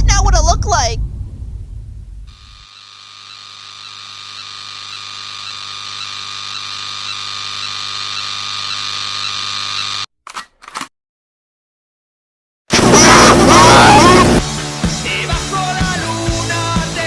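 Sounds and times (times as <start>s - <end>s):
steady electric hum: 1.0s - 10.0s
harsh static glitch noise: 12.7s - 14.4s.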